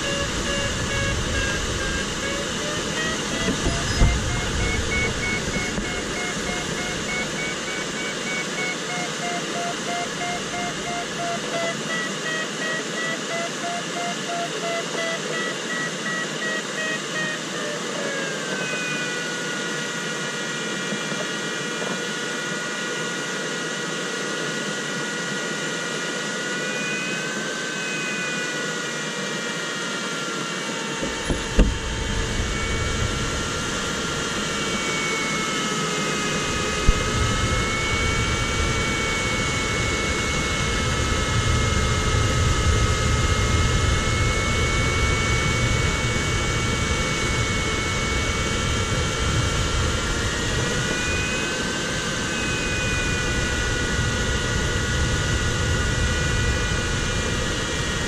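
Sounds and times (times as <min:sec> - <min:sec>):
variometer tones: 0:00.0 - 0:22.0, 0:30.7 - 0:58.0
airflow rushing around cockpit: 0:00.0 - 0:58.0
sharp knock: 0:31.0 - 0:31.9.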